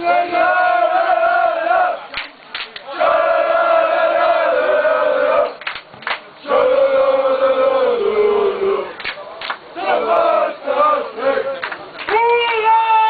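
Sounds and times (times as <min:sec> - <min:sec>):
crowd chanting in unison: 0:00.0 - 0:02.2, 0:02.8 - 0:05.6, 0:06.3 - 0:09.0, 0:09.7 - 0:12.0.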